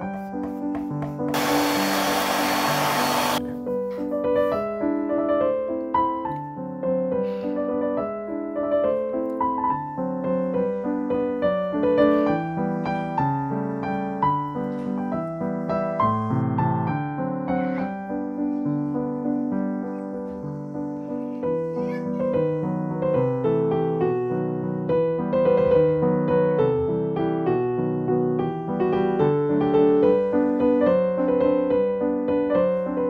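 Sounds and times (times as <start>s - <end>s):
soft piano music: 0.0s - 2.0s, 3.3s - 33.0s
loud rushing hiss: 1.4s - 3.4s.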